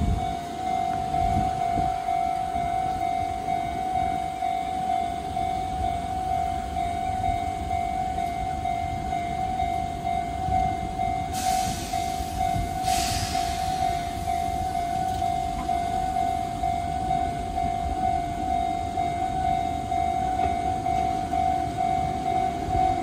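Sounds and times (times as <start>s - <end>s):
level crossing bell ringing: 0.0s - 23.0s
hiss: 11.3s - 14.3s.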